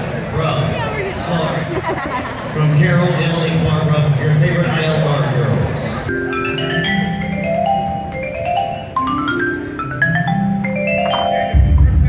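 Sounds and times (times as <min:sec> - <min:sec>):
marimbas and vibraphones playing: 0:06.0 - 0:12.0
loud low boom: 0:11.6 - 0:12.0.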